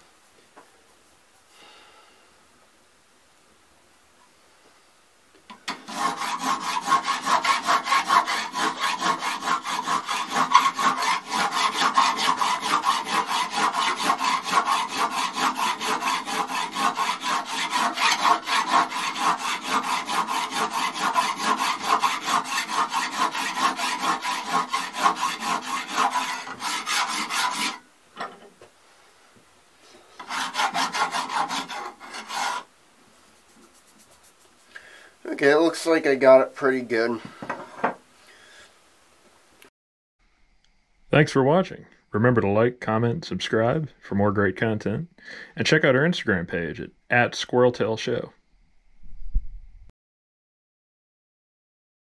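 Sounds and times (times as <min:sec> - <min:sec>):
hand file rasping on brass: 0:05.7 - 0:27.8, 0:30.2 - 0:32.7.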